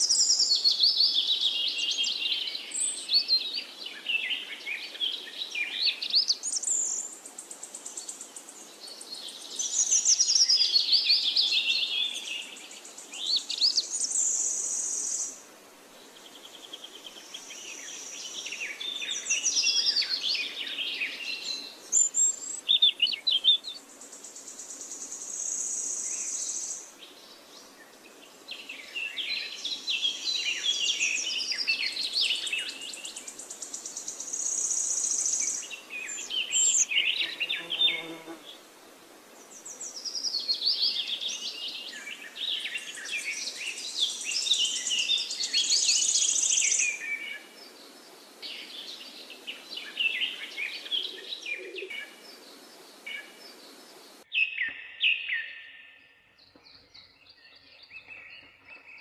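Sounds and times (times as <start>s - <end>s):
birds chirping: 39.4s - 59.0s.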